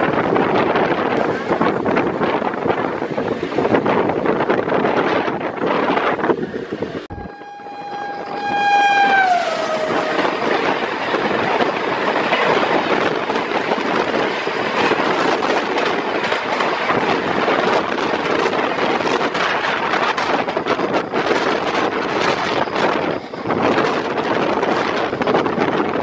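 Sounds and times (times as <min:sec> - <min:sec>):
moving train rushing and clattering: 0:00.0 - 0:26.0
wind on microphone: 0:00.0 - 0:26.0
train horn: 0:07.1 - 0:11.2.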